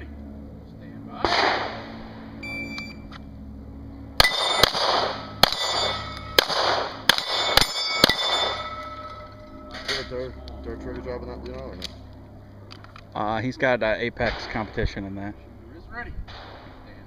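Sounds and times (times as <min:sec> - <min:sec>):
shot timer beep: 0:02.4 - 0:03.0
handgun shots: 0:04.2 - 0:08.5
steel plates clanging: 0:04.2 - 0:10.4.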